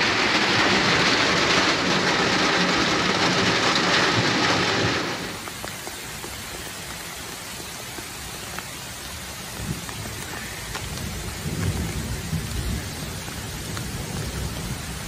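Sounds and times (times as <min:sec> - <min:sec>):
low rumble of thunder: 0:00.0 - 0:05.6, 0:09.5 - 0:15.0
rain drop ticks: 0:00.0 - 0:15.0
steady rain falling: 0:00.0 - 0:15.0.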